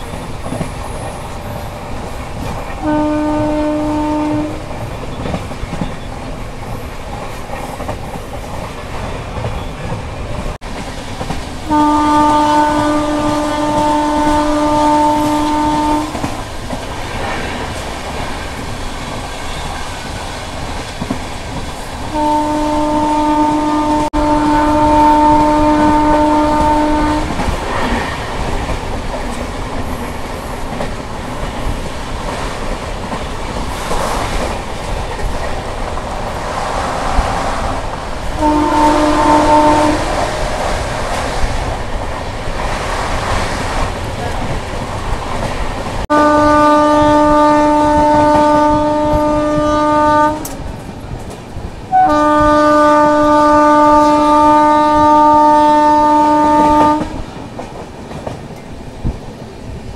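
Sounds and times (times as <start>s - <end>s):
train wheels clattering on rail: 0.0s - 59.9s
locomotive horn blasts: 2.8s - 4.8s, 11.6s - 16.4s, 22.1s - 27.4s, 38.4s - 40.3s, 46.1s - 50.6s, 51.9s - 57.2s.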